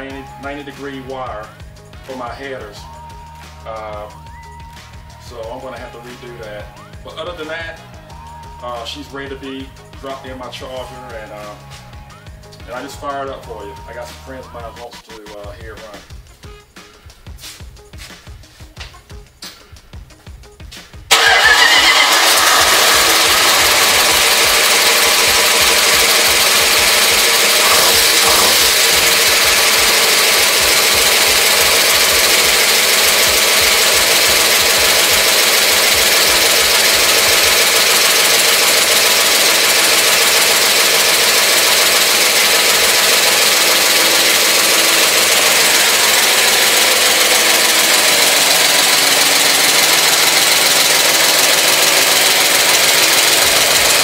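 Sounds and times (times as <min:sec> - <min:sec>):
car engine running with exhaust: 0:21.1 - 0:54.0.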